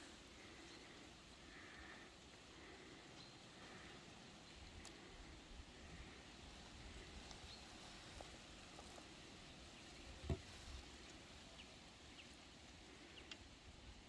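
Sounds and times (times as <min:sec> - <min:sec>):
faint food handling ticks: 0:04.5 - 0:05.4.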